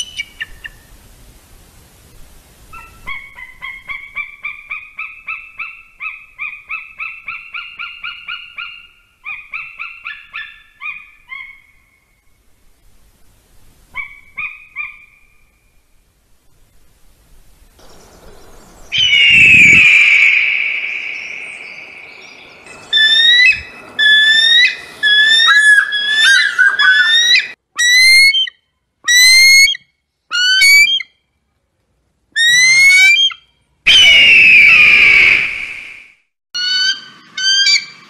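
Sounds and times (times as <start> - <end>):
eagle whistled notes: 18.8 - 27.5
eagle screaming: 18.9 - 28.5, 32.4 - 36.0.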